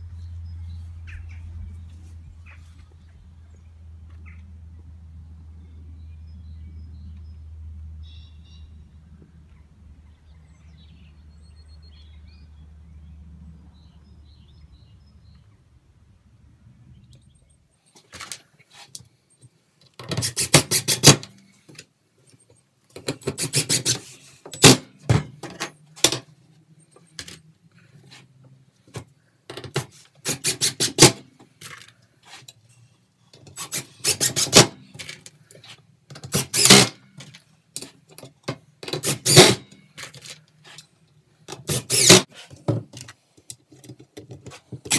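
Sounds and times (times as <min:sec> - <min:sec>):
low outdoor rumble: 0:00.0 - 0:17.8
cordless driver driving screws: 0:20.0 - 0:21.3, 0:33.5 - 0:34.8, 0:36.1 - 0:37.0, 0:38.8 - 0:39.6, 0:41.5 - 0:42.3.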